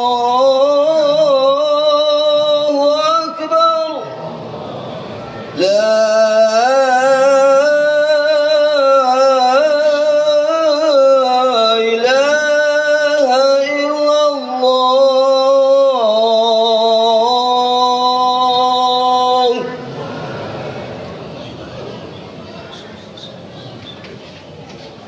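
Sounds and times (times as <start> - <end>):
man chanting over loudspeakers: 0.0 - 4.4, 5.5 - 20.8.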